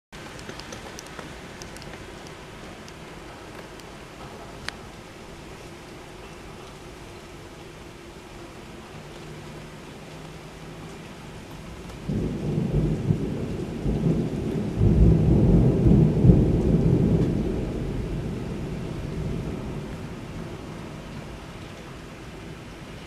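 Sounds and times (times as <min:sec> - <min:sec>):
steady rain: 0:00.1 - 0:23.0
thunder rumble: 0:11.7 - 0:23.0.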